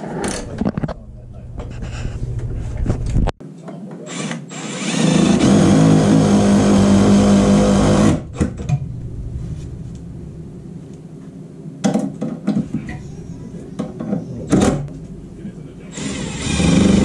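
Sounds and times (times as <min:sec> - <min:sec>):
cordless drill drilling into wood: 0:04.1 - 0:08.2, 0:15.9 - 0:17.0.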